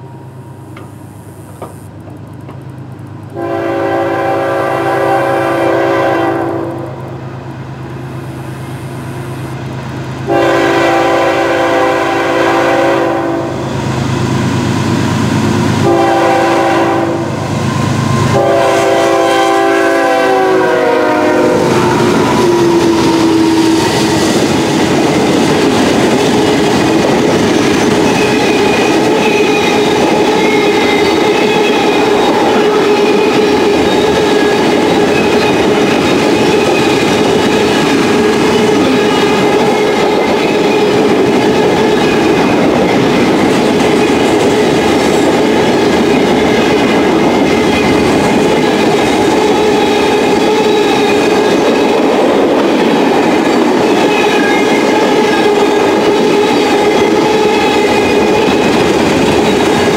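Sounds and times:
wheels on rails: 0.0 - 3.4, 21.6 - 59.9
steady whine: 0.0 - 3.5, 6.8 - 9.8
freight train passing: 0.0 - 59.9
train horn: 3.3 - 7.1, 10.3 - 13.7, 15.8 - 24.4, 28.2 - 35.6, 36.4 - 41.0, 54.0 - 58.9.

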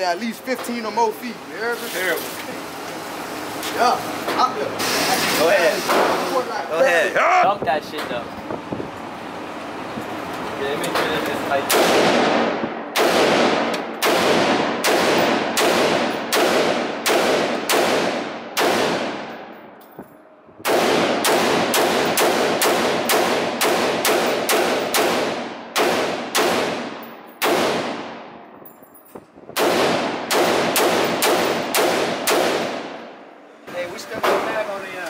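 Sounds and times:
rifle shots echoing indoors: 11.7 - 19.8, 20.6 - 28.6, 29.5 - 33.2.

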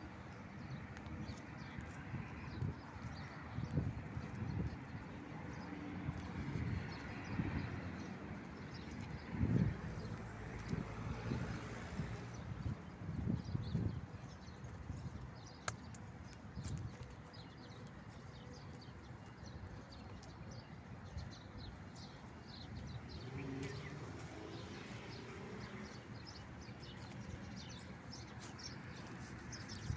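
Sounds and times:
road traffic rumble: 0.0 - 29.9
small birds chirping: 12.3 - 29.9.

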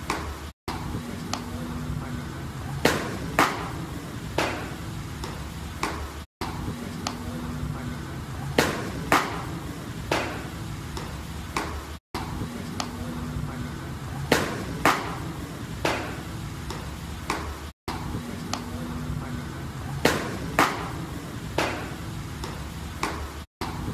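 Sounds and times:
baseballs smacking into mitts: 0.0 - 0.3, 2.8 - 3.8, 4.4 - 6.1, 8.6 - 11.8, 14.3 - 17.6, 20.0 - 23.8.

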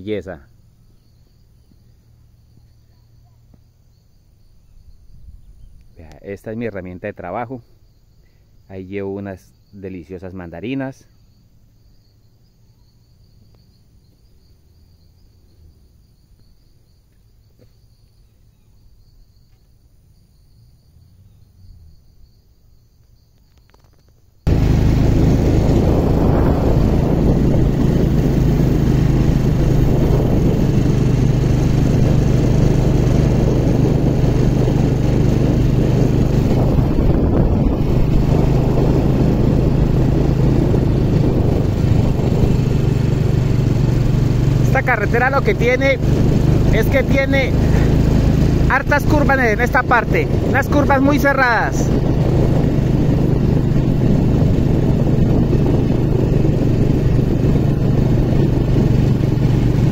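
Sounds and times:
motorcycle engine running: 24.5 - 59.9
wind rushing over microphone: 24.5 - 59.9.

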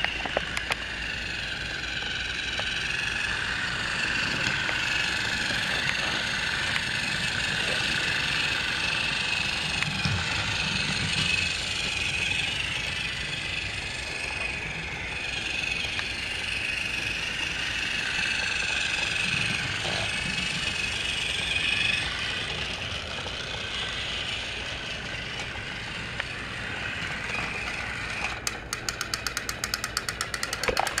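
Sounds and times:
plastic wheels rattling: 0.0 - 31.0
toy train motor whine: 0.0 - 31.0
fast even clicking: 27.6 - 31.0.

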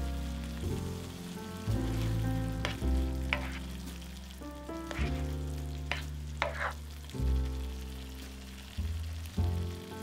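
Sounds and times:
soft background music: 0.0 - 10.0
vegetables sizzling in a frying pan: 0.0 - 10.0
spatula scraping a pan: 2.0 - 4.0, 4.9 - 7.0.

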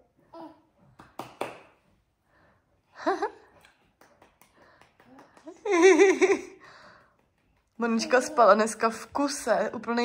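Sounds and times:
hand claps: 0.9 - 1.9, 3.5 - 7.8.

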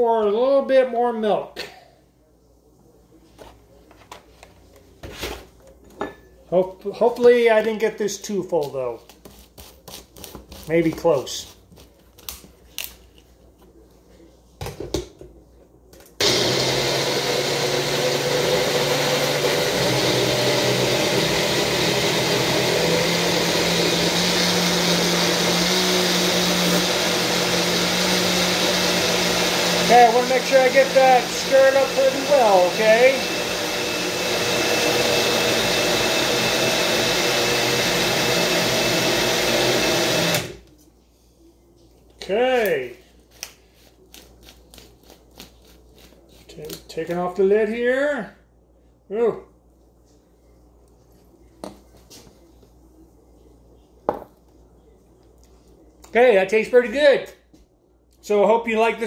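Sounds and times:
blender motor running: 16.2 - 40.6.

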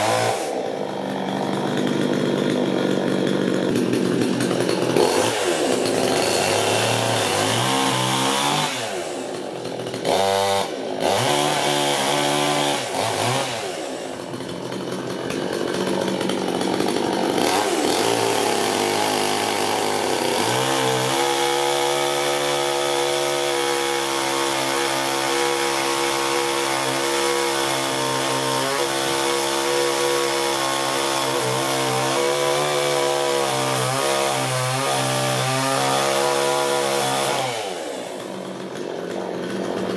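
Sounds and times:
chainsaw cutting logs: 0.0 - 39.9
chainsaw revving: 0.0 - 39.9.

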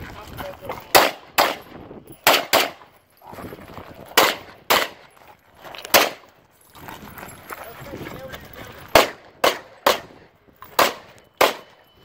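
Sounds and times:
pistol gunshots: 0.9 - 1.6, 2.2 - 2.8, 4.1 - 5.0, 5.9 - 6.2, 8.9 - 10.1, 10.7 - 11.8.

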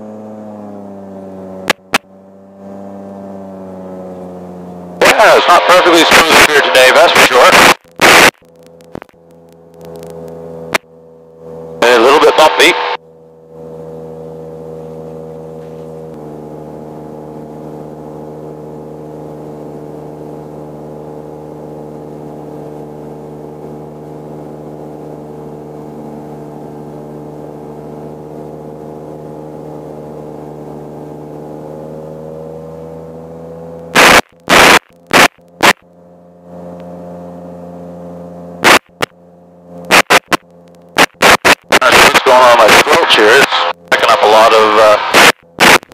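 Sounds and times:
airplane engine droning: 0.0 - 45.9
loud short crackles: 34.0 - 35.8, 39.9 - 42.1.

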